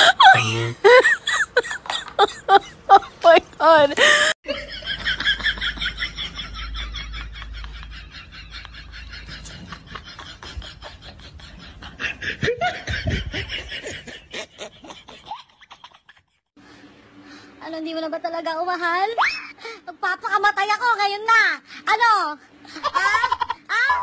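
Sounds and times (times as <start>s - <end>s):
woman laughing hard: 0.0s - 3.2s, 4.0s - 16.2s, 22.8s - 24.0s.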